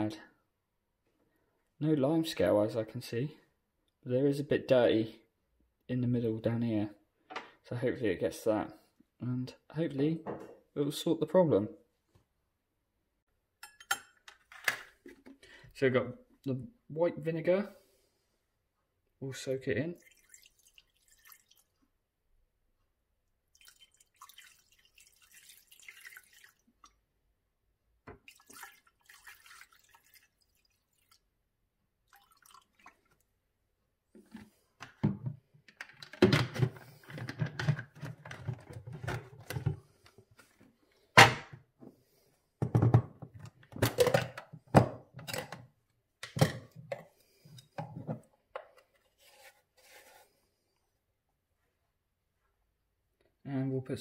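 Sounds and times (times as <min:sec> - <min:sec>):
knocks and handling: 0:13.6 - 0:15.4, 0:34.1 - 0:41.6, 0:42.6 - 0:50.1
liquid pouring into bowl: 0:20.0 - 0:21.8, 0:23.5 - 0:27.0, 0:28.2 - 0:31.3, 0:32.1 - 0:33.2.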